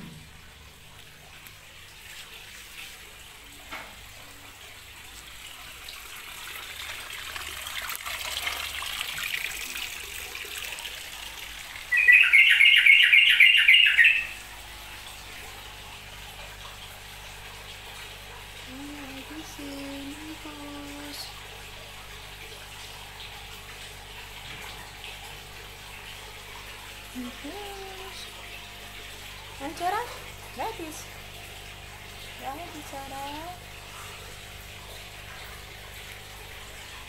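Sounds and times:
water splashing: 0.0s - 37.0s
bird chirping: 11.9s - 14.4s.

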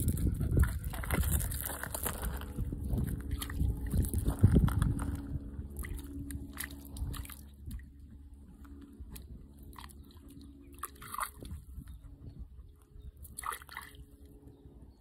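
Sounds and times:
dog biting root crunches: 0.0s - 2.6s
dog splashing in a stream: 13.4s - 14.0s.

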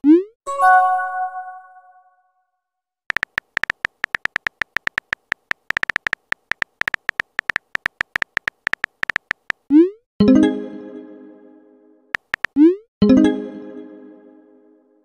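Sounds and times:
phone keyboard tapping clicks: 3.1s - 9.7s, 12.2s - 12.6s.

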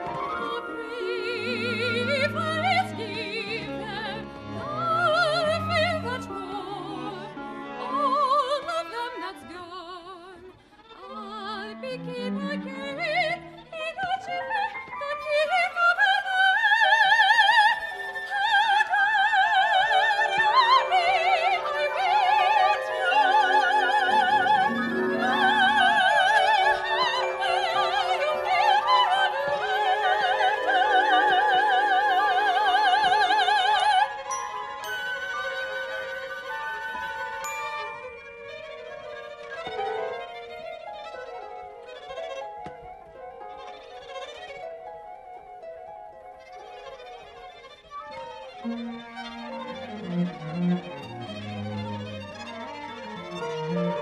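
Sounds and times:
soprano singing with vibrato: 0.0s - 40.4s
chamber ensemble playing: 17.6s - 47.0s, 47.6s - 54.0s.

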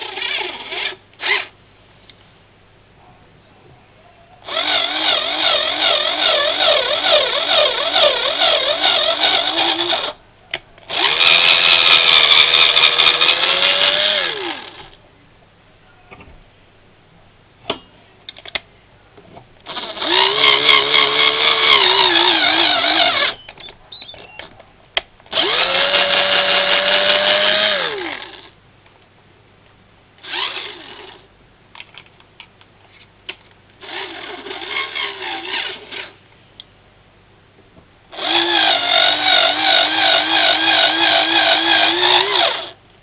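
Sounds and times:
electric drill whining: 0.0s - 1.5s, 4.5s - 10.2s, 10.9s - 15.0s, 19.7s - 23.4s, 25.3s - 28.5s, 33.8s - 36.2s, 38.1s - 42.8s.

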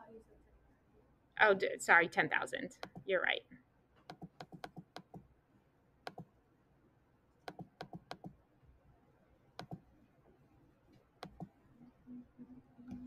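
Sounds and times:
computer mouse clicking: 2.8s - 3.1s, 4.0s - 5.2s, 6.1s - 6.3s, 7.4s - 8.4s, 9.6s - 9.8s, 11.2s - 11.5s.

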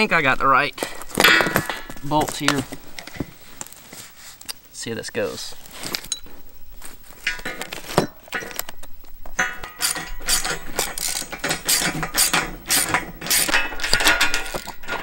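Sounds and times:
metallic clinks of bolts: 7.2s - 15.0s
ratchet wrench clicking: 9.6s - 14.8s.

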